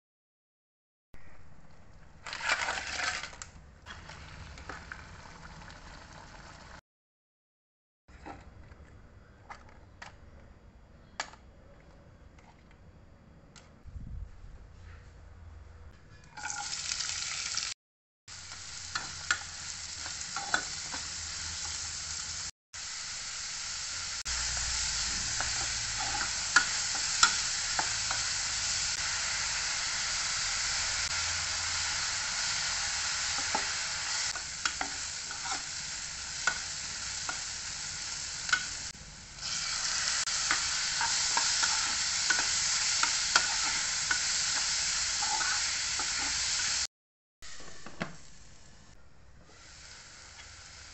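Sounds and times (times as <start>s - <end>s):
onions sizzling in hot oil: 16.4s - 46.9s, 49.5s - 50.9s
spatula scraping a pan: 20.0s - 21.8s, 25.4s - 28.2s, 33.4s - 35.8s, 40.4s - 46.7s.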